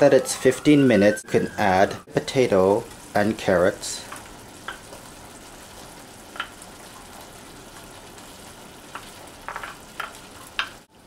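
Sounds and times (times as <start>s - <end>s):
stew sizzling in a skillet: 1.3s - 11.0s
vegetable cubes dropping into pan: 8.9s - 10.8s.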